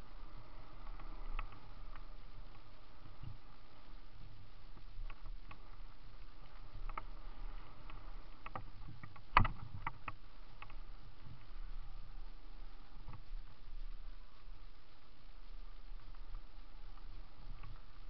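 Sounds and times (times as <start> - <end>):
bike tyres rumbling on dirt: 0.0 - 14.0
bike rattling clicks: 0.3 - 3.4, 5.0 - 10.8.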